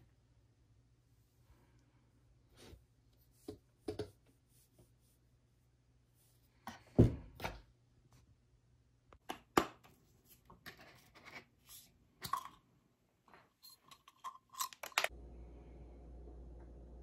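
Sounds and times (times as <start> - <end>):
metal parts clicking and scraping: 13.4 - 15.1.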